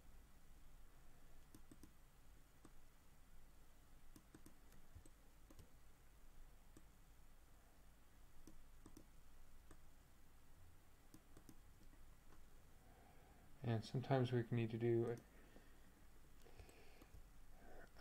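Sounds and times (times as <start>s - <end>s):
computer mouse clicks: 1.4s - 2.0s, 4.1s - 5.7s, 8.4s - 9.8s, 11.1s - 12.4s, 16.4s - 17.2s.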